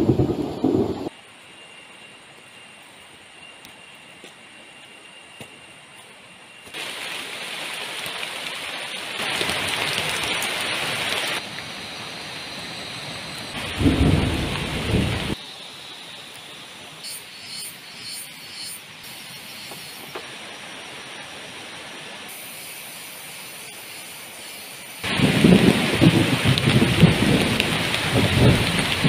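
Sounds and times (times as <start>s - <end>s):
heavy rain falling: 0.0s - 1.1s, 6.8s - 15.4s, 25.0s - 29.0s
low rumble of thunder: 0.0s - 1.1s, 13.6s - 15.4s, 25.0s - 29.0s.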